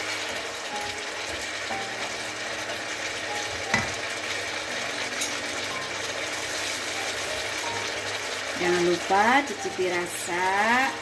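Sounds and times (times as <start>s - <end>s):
sauce sizzling in a wok: 0.0s - 11.0s
spatula knocking on pan: 3.5s - 4.0s.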